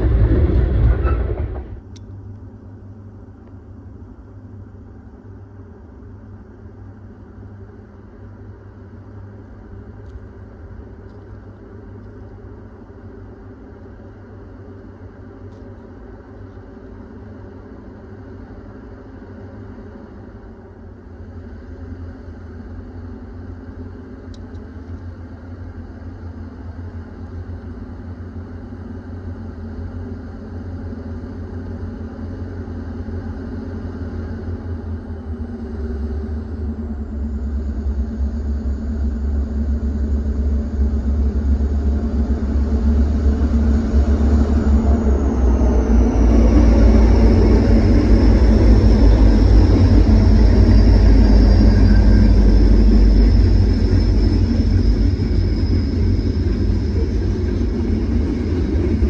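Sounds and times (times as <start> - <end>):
high whine dropping in pitch: 0.0 - 2.0, 29.2 - 59.0
diesel locomotive rumble: 0.0 - 59.0.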